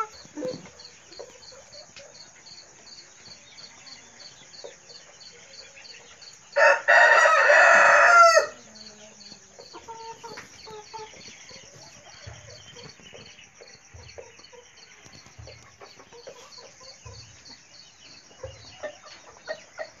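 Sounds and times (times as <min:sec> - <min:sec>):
chicken clucking: 0:00.0 - 0:20.0
insect chirping: 0:00.0 - 0:20.0
rooster crowing: 0:06.6 - 0:08.8.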